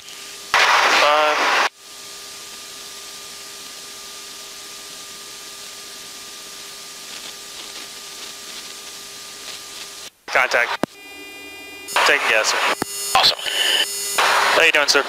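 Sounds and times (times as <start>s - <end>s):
radio channel hiss: 0.5s - 1.7s, 7.1s - 11.0s, 11.9s - 15.0s
faint two-tone hum: 1.3s - 15.0s.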